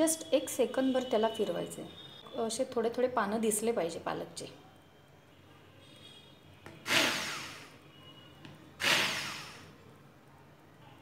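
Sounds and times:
electric hand blender whirring: 6.9s - 7.7s, 8.8s - 9.6s.

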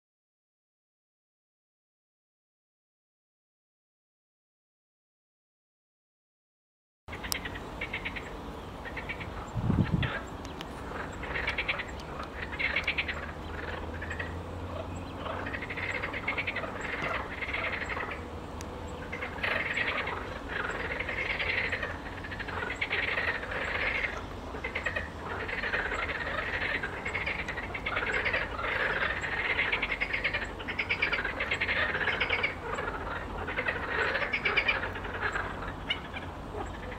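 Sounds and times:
frogs croaking in chorus: 7.1s - 36.9s.

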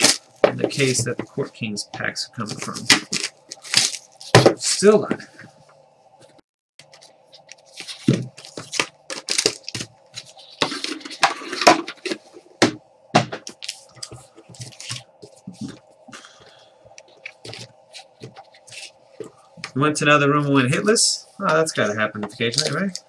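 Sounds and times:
plastic wrapping tearing and crinkling: 0.0s - 1.0s, 2.6s - 4.9s, 7.6s - 11.1s
faint hum: 0.0s - 23.0s.

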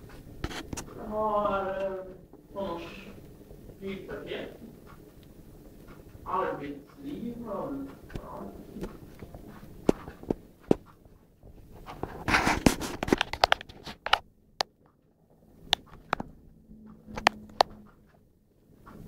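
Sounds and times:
sharp clicks and knocks: 0.0s - 1.0s, 7.9s - 15.0s, 15.7s - 18.2s.

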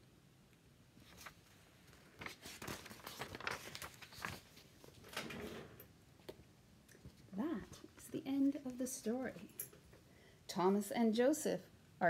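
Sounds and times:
book pages turning: 1.0s - 5.1s.

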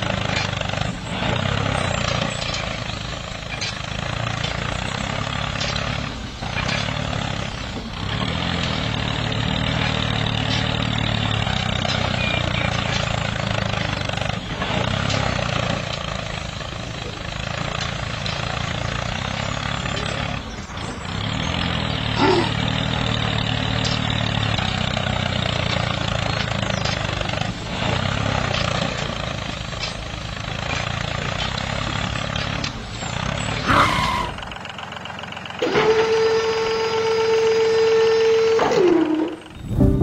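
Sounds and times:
tractor engine running: 0.0s - 40.0s
steady whine dropping in pitch: 39.5s - 40.0s.

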